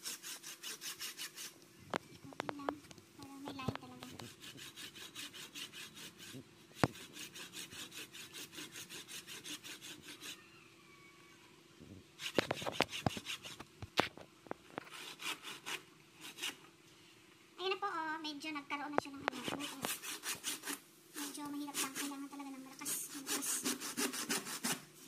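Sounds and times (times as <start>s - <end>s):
handsaw cutting fruit shell: 0.0s - 1.6s, 3.6s - 10.5s, 12.2s - 13.7s, 14.8s - 16.6s, 19.3s - 22.2s, 22.8s - 25.0s.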